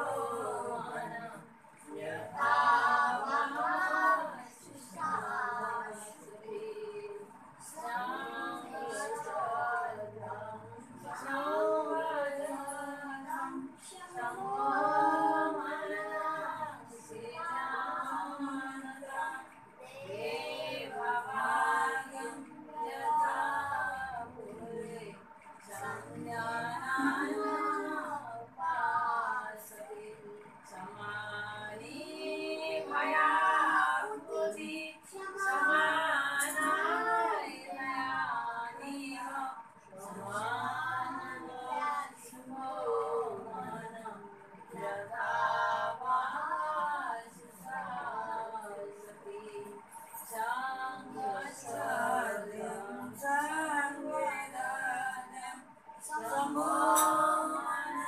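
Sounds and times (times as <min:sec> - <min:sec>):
women singing a chant: 0:00.0 - 0:58.0.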